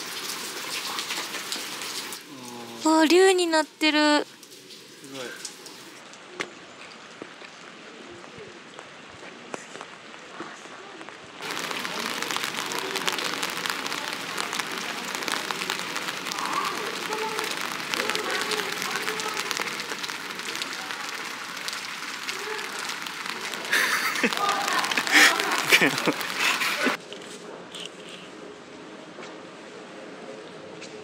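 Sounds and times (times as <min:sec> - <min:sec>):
rain pattering: 0:00.0 - 0:27.0.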